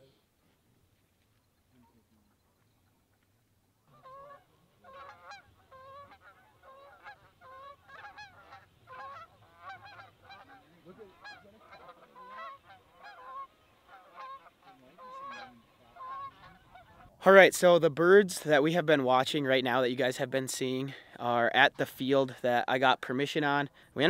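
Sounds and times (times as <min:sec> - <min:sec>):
geese honking in flight: 0:03.8 - 0:17.1.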